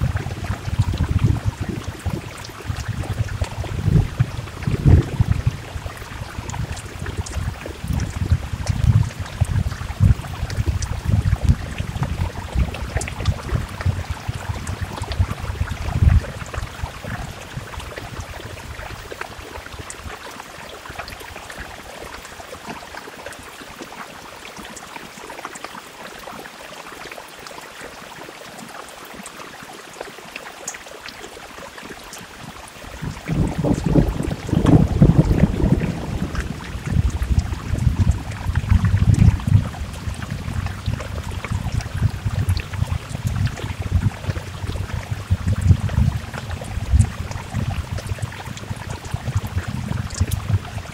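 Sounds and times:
low gusty rumble: 0:00.0 - 0:19.0, 0:33.0 - 0:50.9
steady rain falling: 0:00.0 - 0:50.9.

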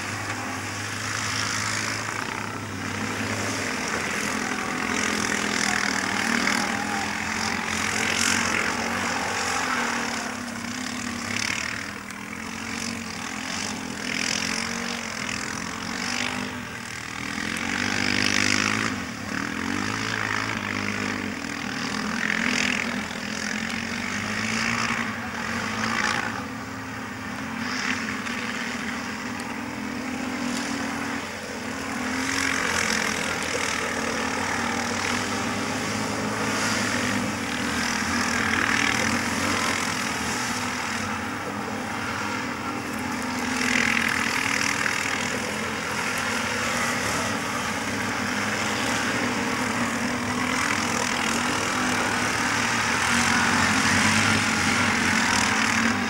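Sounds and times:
quad bike engines revving: 0:00.0 - 0:56.0.

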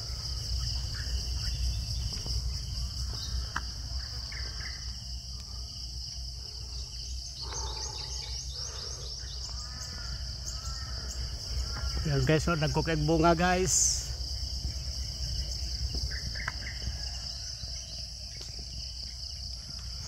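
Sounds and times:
birds chirping: 0:00.0 - 0:20.0
insects droning: 0:00.0 - 0:20.0.

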